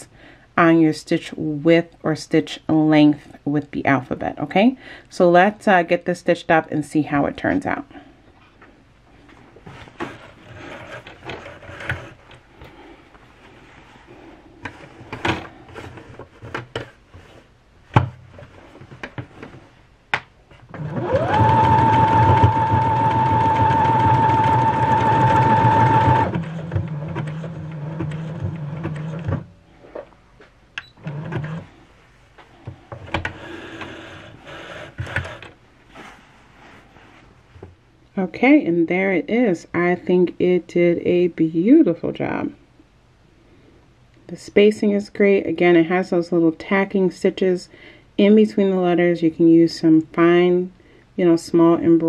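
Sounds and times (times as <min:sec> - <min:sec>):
sewing machine motor whining: 0:20.8 - 0:29.4.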